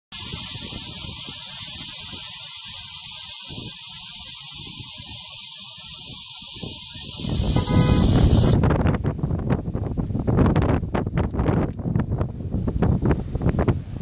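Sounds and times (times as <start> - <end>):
air hissing out of tire valve: 0.1 - 8.6.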